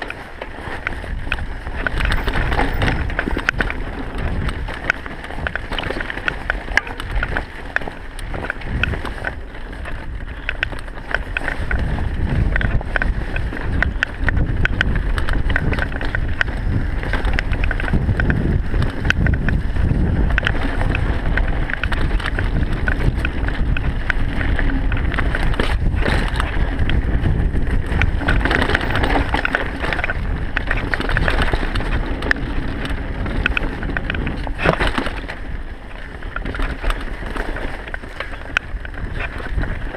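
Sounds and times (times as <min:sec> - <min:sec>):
bike clicks and rattles: 0:00.0 - 0:39.9
bike tyre rumble on dirt: 0:00.0 - 0:39.9
wind rush on microphone: 0:00.0 - 0:39.9.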